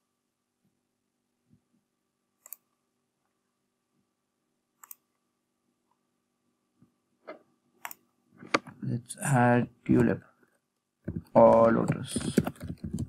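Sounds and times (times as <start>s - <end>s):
computer mouse clicks: 2.4s - 2.7s, 4.8s - 5.1s, 7.3s - 8.7s.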